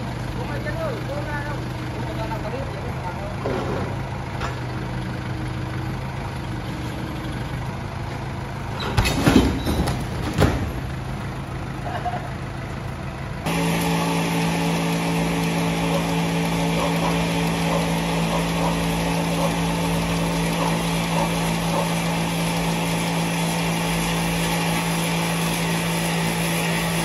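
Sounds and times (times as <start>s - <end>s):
loud steady engine hum: 0.0s - 27.0s
truck engine running: 0.0s - 27.0s
loud knocks and clatters: 8.8s - 11.2s.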